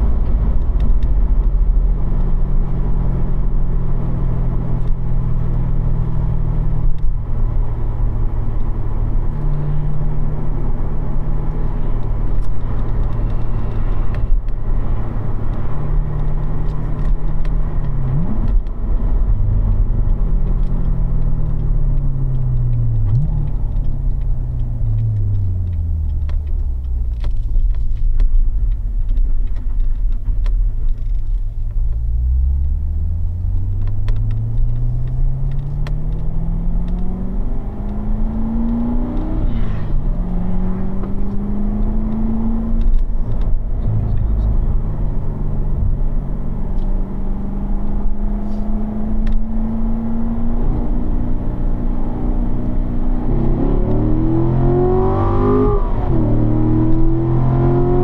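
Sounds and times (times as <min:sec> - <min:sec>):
car engine accelerating through gears: 0:00.0 - 0:58.0.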